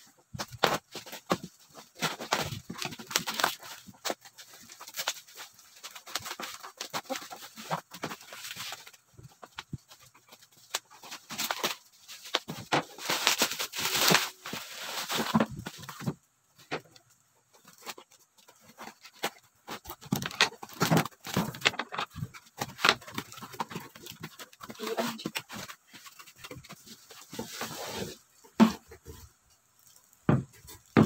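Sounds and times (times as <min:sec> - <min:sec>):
plastic wrapping crinkling and tearing: 0:00.3 - 0:16.8, 0:17.6 - 0:28.2.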